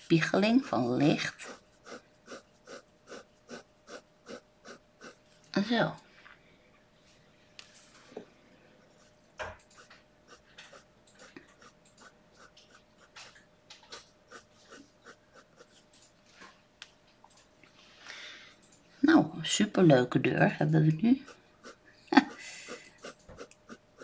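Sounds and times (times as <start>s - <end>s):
pen scratching on paper: 0.6s - 5.2s, 9.8s - 13.2s, 13.9s - 15.8s, 21.2s - 24.0s.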